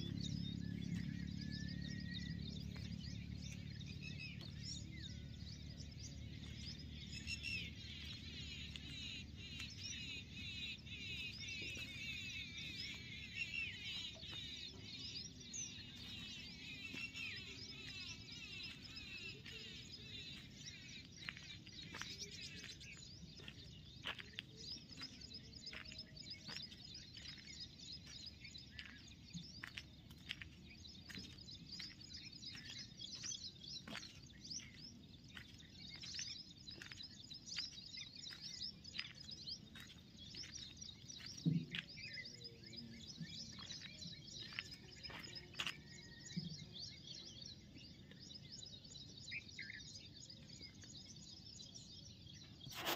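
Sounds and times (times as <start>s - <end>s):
low background rumble: 0.0s - 24.0s
small birds chirping: 0.0s - 52.9s.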